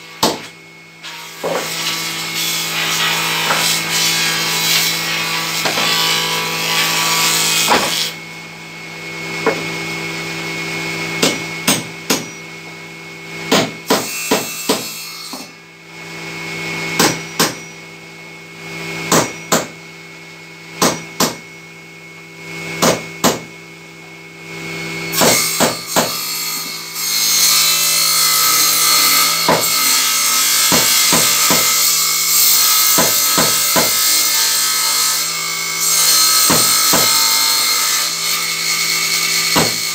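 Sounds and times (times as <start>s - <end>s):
power saw cutting wood: 0.0s - 8.2s, 13.4s - 15.6s, 24.7s - 39.9s
hammer blows on wooden boards: 22.8s - 23.5s, 29.5s - 29.8s, 30.7s - 31.8s, 33.0s - 34.0s, 36.4s - 37.2s, 39.5s - 39.9s.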